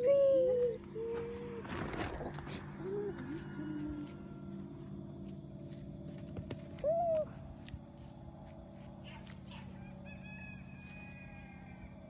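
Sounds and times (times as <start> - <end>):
faint rooster crow: 2.5 - 5.0, 9.1 - 12.0.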